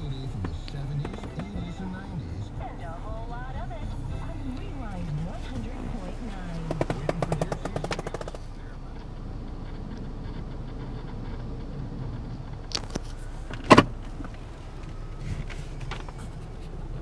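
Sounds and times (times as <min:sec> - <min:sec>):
car engine idling: 0:00.0 - 0:17.0
quick ticks: 0:06.5 - 0:13.2.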